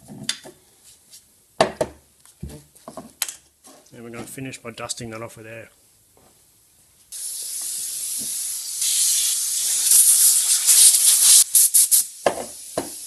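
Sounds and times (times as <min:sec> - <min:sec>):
compressed air blow gun hissing: 0:07.1 - 0:13.0.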